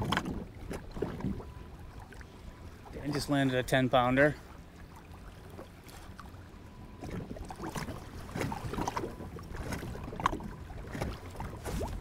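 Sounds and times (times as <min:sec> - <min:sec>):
wind rumble on microphone: 0:00.0 - 0:02.0, 0:06.9 - 0:12.0
waves slapping kayak hull: 0:00.0 - 0:12.0.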